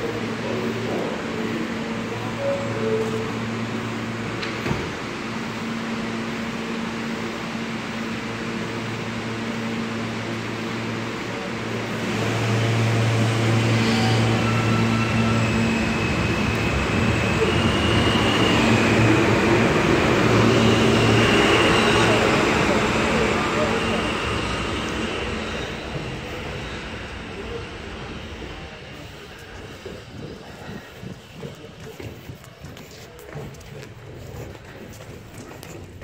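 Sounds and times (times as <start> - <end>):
train doors shutting: 0.0 - 5.4
train electrical hum: 0.0 - 36.0
traction motors whining: 12.3 - 36.0.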